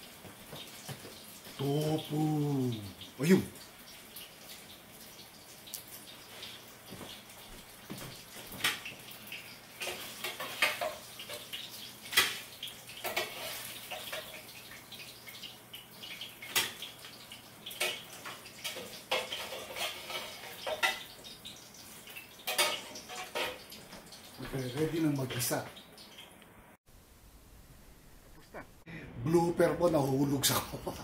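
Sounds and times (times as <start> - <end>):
utensils clinking against pans: 9.8 - 14.5, 17.7 - 21.4, 22.1 - 24.0.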